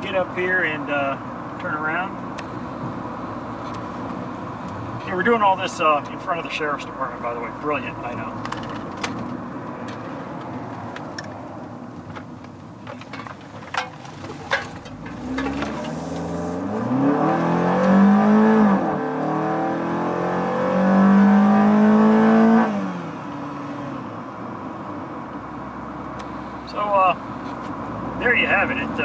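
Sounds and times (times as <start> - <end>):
car engine accelerating with growl: 14.1 - 29.0.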